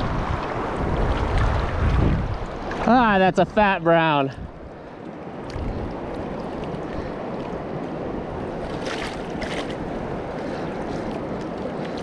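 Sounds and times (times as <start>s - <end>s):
sharp water splashes: 5.4s - 12.0s.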